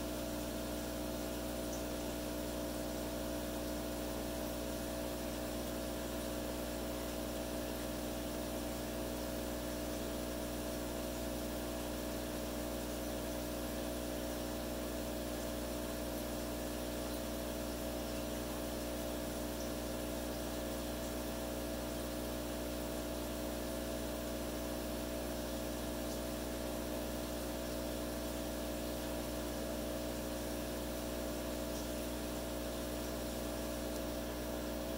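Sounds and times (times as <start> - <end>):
aquarium pump humming: 0.0 - 34.9.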